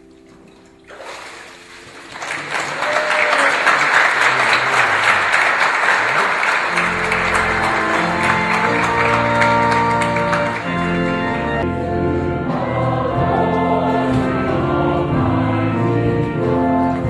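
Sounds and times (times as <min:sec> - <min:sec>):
congregation applauding: 0:00.9 - 0:11.7
instrumental music: 0:06.0 - 0:17.0.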